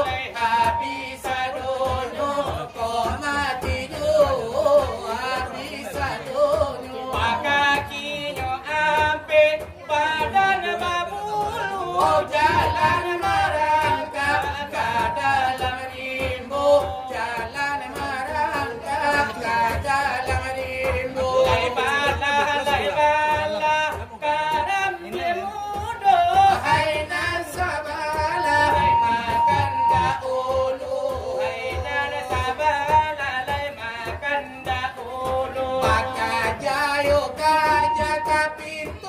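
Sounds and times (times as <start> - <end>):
beat struck on brass tray: 0.0 - 39.0
person singing ornamented vocal line: 26.4 - 31.8, 35.5 - 39.0.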